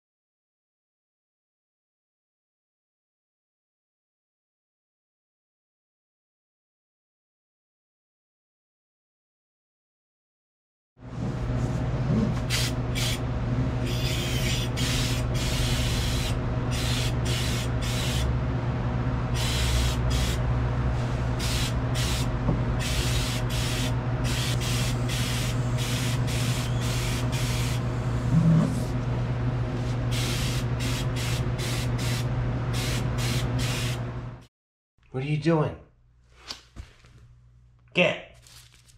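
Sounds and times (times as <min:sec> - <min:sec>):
steady low hum: 0:11.0 - 0:34.5
spray gun hissing: 0:19.4 - 0:20.4, 0:21.4 - 0:27.8, 0:30.1 - 0:34.0.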